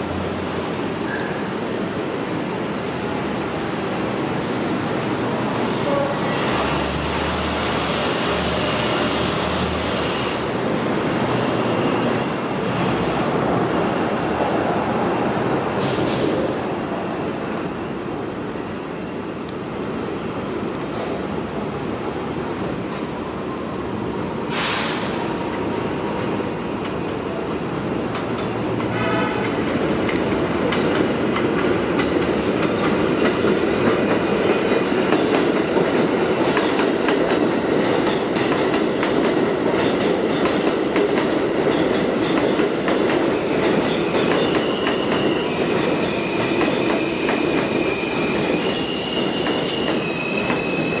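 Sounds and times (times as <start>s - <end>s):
street traffic noise: 0.0s - 51.0s
train wheels rumbling over rails: 24.0s - 51.0s
air hiss: 24.5s - 25.3s.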